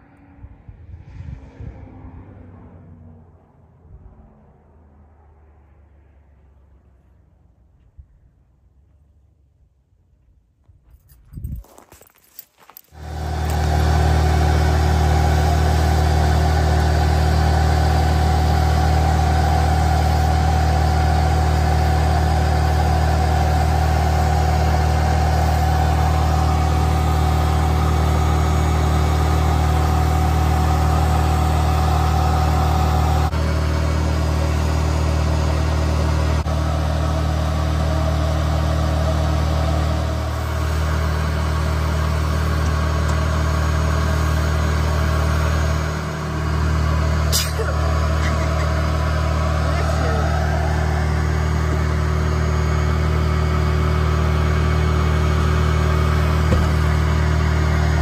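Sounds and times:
vacuum motor hum: 13.0 - 58.0.

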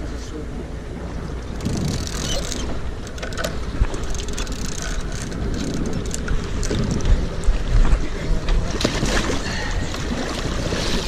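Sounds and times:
steady low rumble: 0.0 - 10.8
fishing reel ratchet clicking: 1.6 - 7.1.

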